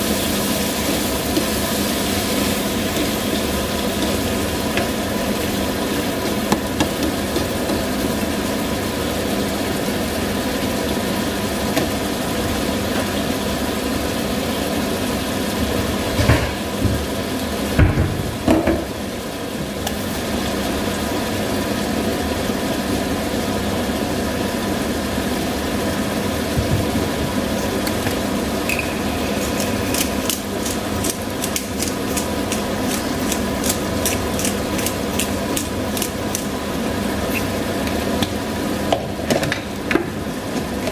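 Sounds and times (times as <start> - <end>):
squid sizzling in a pan: 0.0 - 15.4, 27.5 - 38.8
steady mechanical hum: 0.0 - 40.9
pepper grinder clicks: 29.6 - 36.5.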